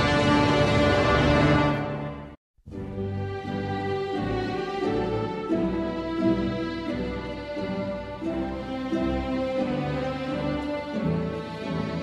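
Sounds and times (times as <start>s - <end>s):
slow music with held notes: 2.6s - 12.0s.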